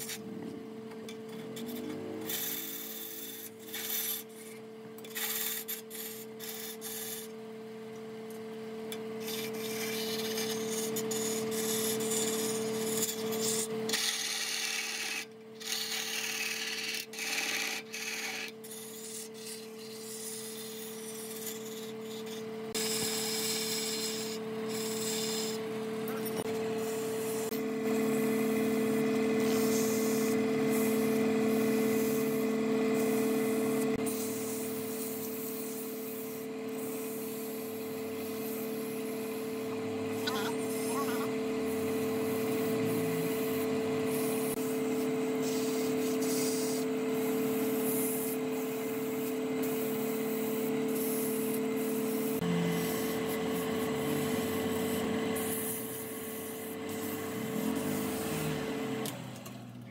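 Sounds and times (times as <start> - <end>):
electric motor hum: 0.0 - 8.3, 8.9 - 59.9
power sander rasping on wood: 9.4 - 28.3, 39.9 - 48.5, 49.7 - 59.0.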